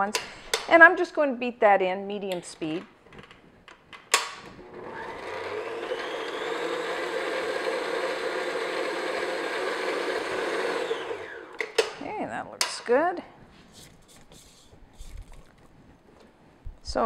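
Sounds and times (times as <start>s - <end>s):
stand mixer motor running: 4.6s - 11.7s.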